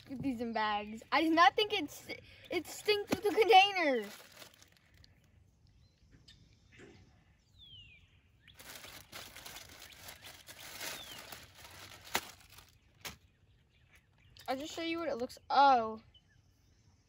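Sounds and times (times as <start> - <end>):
plastic bag rustling: 2.8 - 5.0, 8.5 - 13.2.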